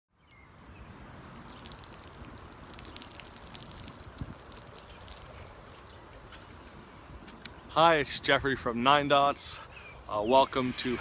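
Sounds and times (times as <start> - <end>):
water trickling onto soil: 0.5 - 6.8.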